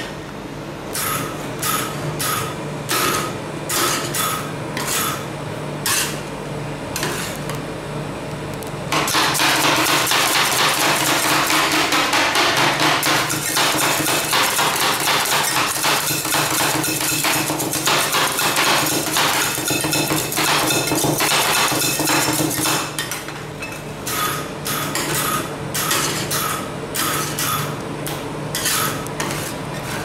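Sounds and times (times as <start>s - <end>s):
metal spatulas striking cold plate: 1.0s - 5.2s, 9.0s - 23.3s.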